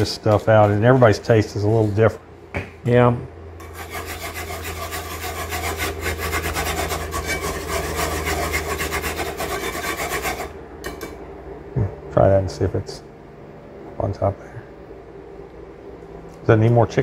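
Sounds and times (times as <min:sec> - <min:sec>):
whisk scraping skillet: 0:00.0 - 0:02.2, 0:03.6 - 0:11.0
low steady hum: 0:00.0 - 0:17.0.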